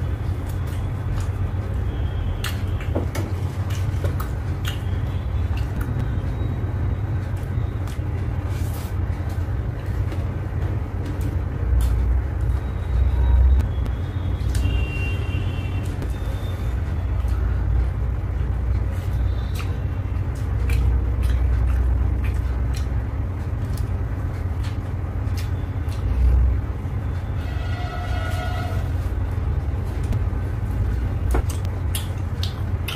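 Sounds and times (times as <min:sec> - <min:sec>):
chewing and mouth smacks: 0:02.4 - 0:06.0, 0:18.7 - 0:26.2, 0:31.5 - 0:32.9.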